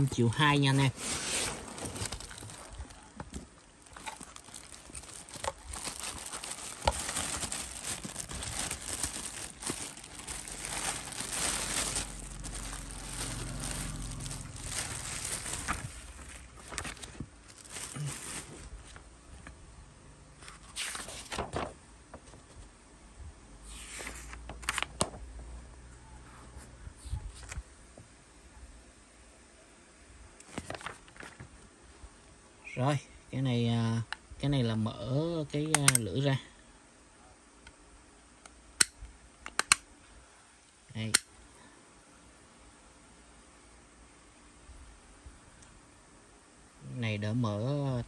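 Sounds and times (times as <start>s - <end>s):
plastic bags and cardboard crinkling: 0.0s - 19.1s, 30.5s - 31.6s.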